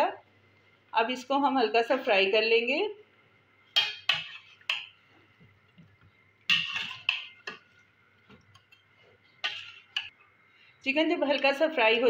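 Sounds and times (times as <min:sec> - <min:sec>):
metal spoon scraping pot: 0:03.8 - 0:04.9, 0:06.5 - 0:07.8, 0:08.6 - 0:10.1.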